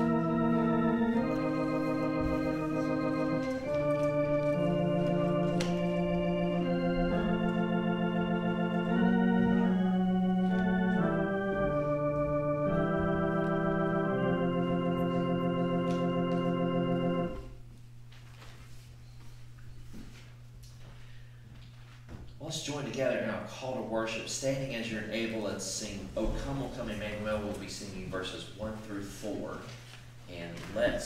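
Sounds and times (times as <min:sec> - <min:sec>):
organ playing sustained chords: 0:00.0 - 0:17.7
low steady hum: 0:00.0 - 0:31.0.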